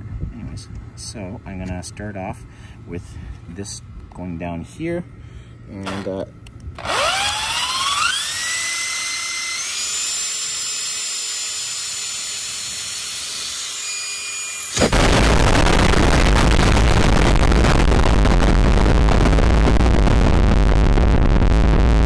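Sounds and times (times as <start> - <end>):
electric drill whining: 5.8 - 6.1, 6.8 - 15.1.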